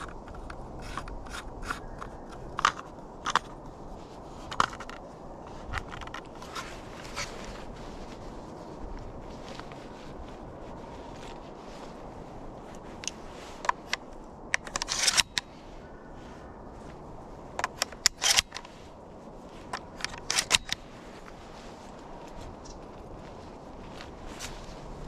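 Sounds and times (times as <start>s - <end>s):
outdoor hush: 0.0s - 7.8s
footsteps crunching in dry leaves: 0.0s - 25.0s.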